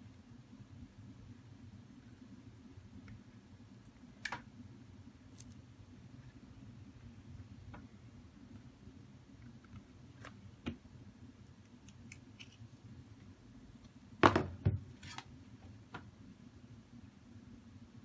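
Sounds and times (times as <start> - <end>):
low room hum: 0.0 - 18.0.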